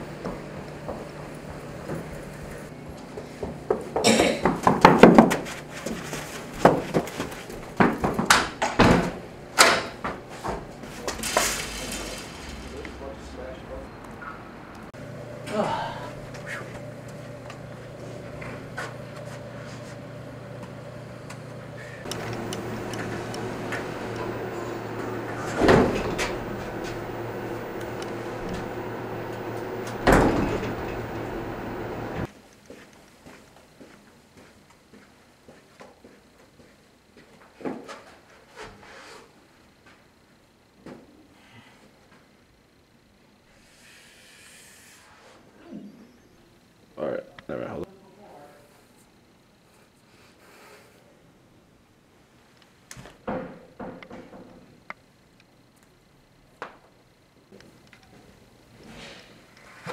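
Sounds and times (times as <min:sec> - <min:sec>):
elevator doors sliding: 0:00.0 - 0:02.7, 0:08.9 - 0:32.3
elevator humming: 0:00.0 - 0:04.6, 0:05.4 - 0:32.3
clattering knocks and thuds: 0:22.1 - 0:32.3, 0:53.2 - 0:54.7
elevator button press: 0:22.1 - 0:32.3.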